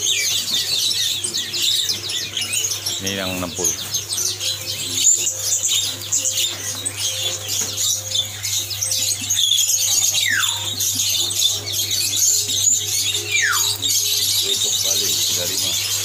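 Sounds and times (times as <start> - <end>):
songbirds chirping: 0.0 - 16.0
falling bird whistle: 13.3 - 13.8.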